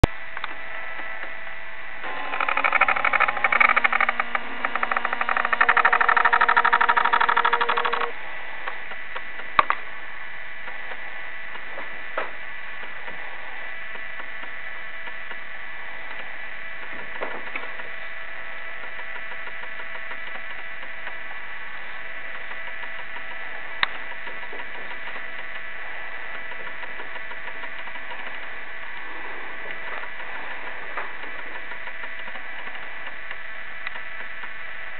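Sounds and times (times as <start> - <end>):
faint high whine: 0.0 - 34.9
mechanical whir and hiss: 0.4 - 34.9
short clicks: 2.0 - 8.2
small electric motor whirring: 2.0 - 8.2.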